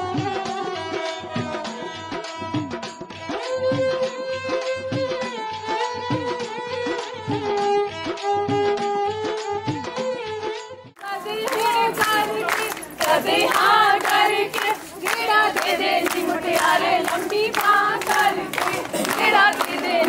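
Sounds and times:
clapping in time: 0:11.0 - 0:20.0
women singing together: 0:11.0 - 0:20.0.

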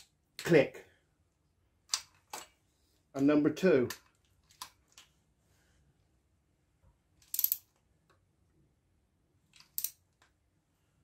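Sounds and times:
torque wrench clicks: 0:07.2 - 0:07.6.

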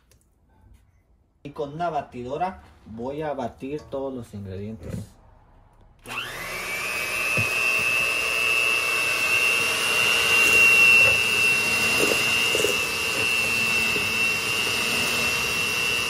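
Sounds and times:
electric hand mixer whining: 0:06.0 - 0:16.0.

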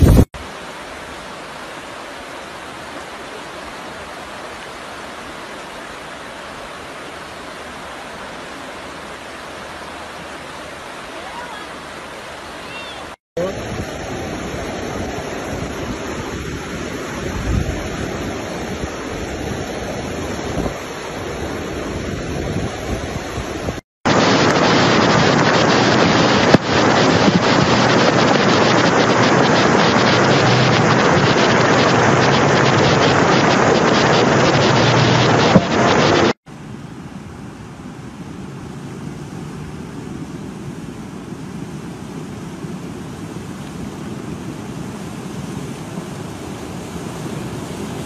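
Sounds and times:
wind buffeting microphone: 0:00.0 - 0:00.3, 0:13.6 - 0:36.3
rushing flood water: 0:00.0 - 0:48.0.

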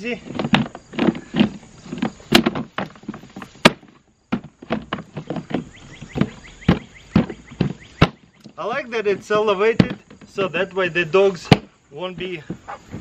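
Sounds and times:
plastic tub knocking on frame: 0:09.1 - 0:10.3.

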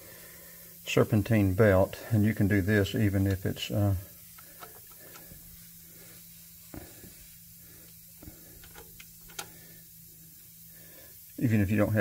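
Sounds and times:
low steady hum: 0:00.0 - 0:12.0
ratchet clicking: 0:03.2 - 0:05.6, 0:06.5 - 0:11.5.

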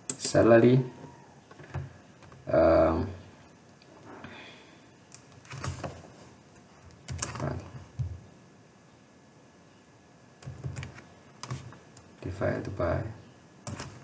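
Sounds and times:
computer keyboard keystrokes: 0:06.9 - 0:08.1, 0:10.4 - 0:12.8, 0:13.6 - 0:14.0.

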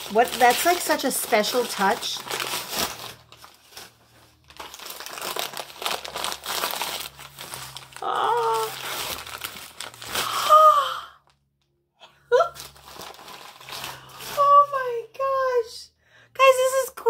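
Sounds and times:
wrapping paper crinkling: 0:00.0 - 0:11.0, 0:12.4 - 0:14.8
person saying ooh: 0:08.0 - 0:08.9.

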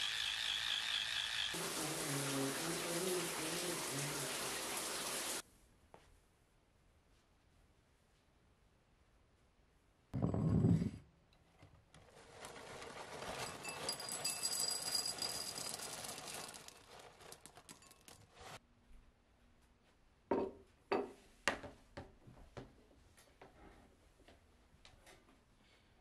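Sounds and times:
cereal pouring into bowl: 0:12.2 - 0:18.6.

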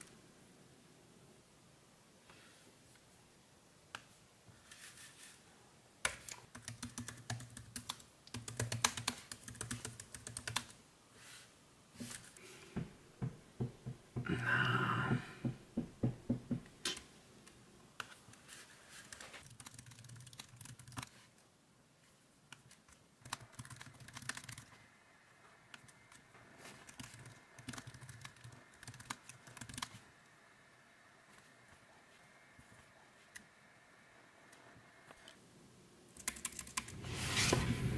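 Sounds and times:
typing on laptop keyboard: 0:06.0 - 0:10.8, 0:19.0 - 0:21.3, 0:22.6 - 0:24.8, 0:26.7 - 0:30.0, 0:36.2 - 0:36.9.

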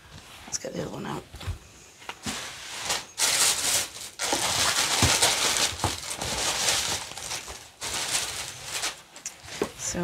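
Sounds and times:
packing paper crinkling: 0:02.7 - 0:09.5.

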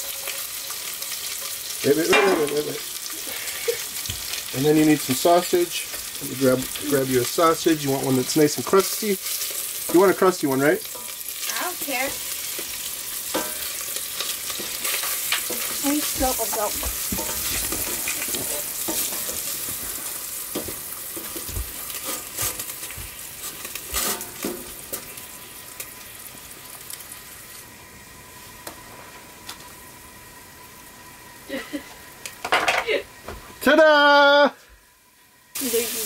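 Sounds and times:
sausages sizzling in a pot: 0:00.0 - 0:36.0
spatula knocking and scraping pot: 0:14.5 - 0:19.4.

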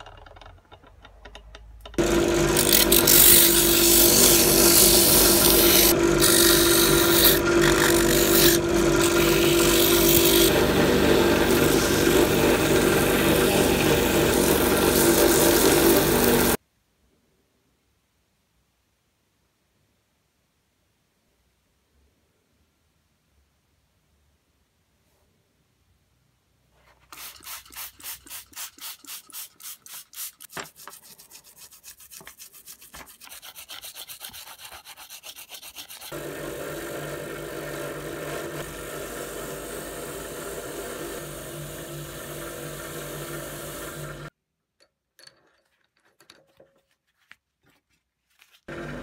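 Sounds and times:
drill press with wire wheel: 0:00.0 - 0:16.6, 0:36.1 - 0:46.9, 0:48.7 - 0:49.0.

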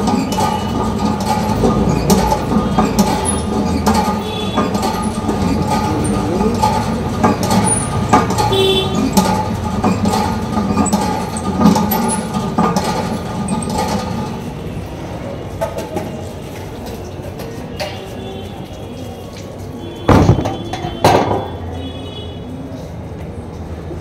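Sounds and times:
traffic and road noise: 0:00.0 - 0:24.0
vehicle engine running: 0:01.0 - 0:13.4.

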